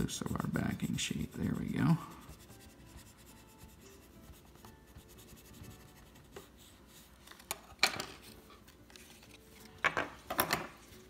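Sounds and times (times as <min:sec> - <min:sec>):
burnishing tool scratching paper: 0:00.0 - 0:07.1.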